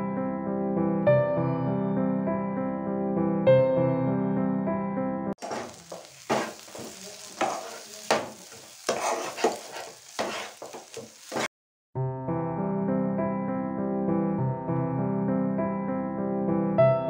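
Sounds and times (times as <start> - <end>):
piano music: 0.0 - 7.6, 12.0 - 17.0
light sizzle: 5.4 - 11.5
spatula scraping pan: 5.4 - 11.5.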